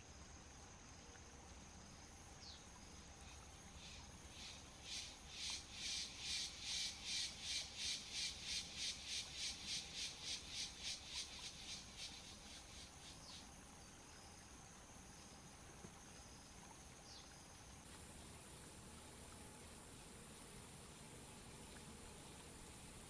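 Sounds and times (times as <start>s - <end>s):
cicada pulsing song: 3.2s - 13.6s, 17.8s - 23.0s.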